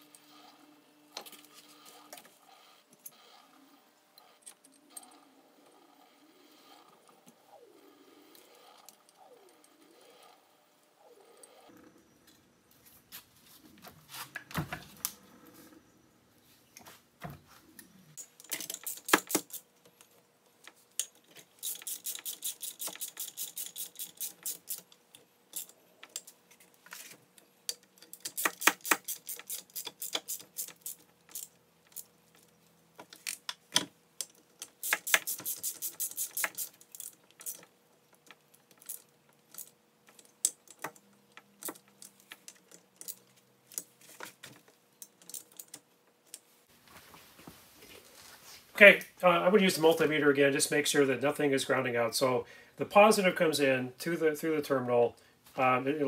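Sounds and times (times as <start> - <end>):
metal parts tapping: 18.2 - 19.6.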